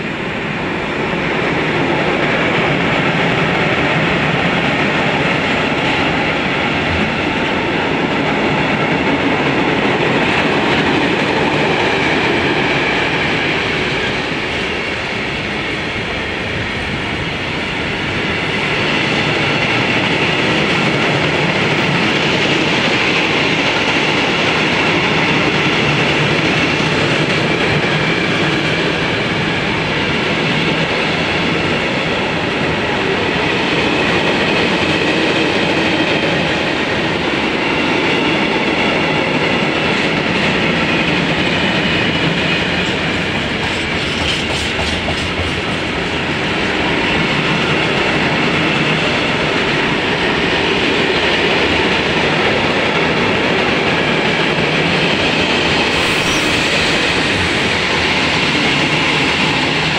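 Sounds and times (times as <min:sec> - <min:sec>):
train wheels clattering on rails: 0:00.0 - 0:59.9.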